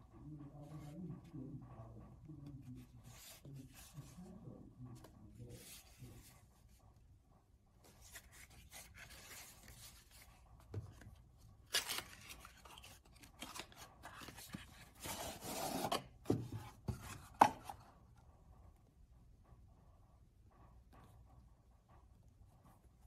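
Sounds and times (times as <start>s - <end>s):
cardboard rubbing and scraping: 11.7s - 17.7s.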